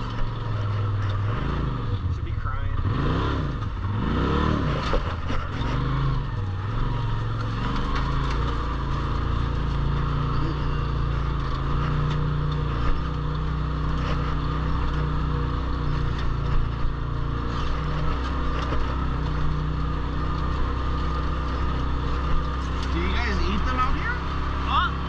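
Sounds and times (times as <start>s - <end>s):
vehicle engine droning: 0.0s - 25.0s
knocks and rattles: 6.7s - 25.0s.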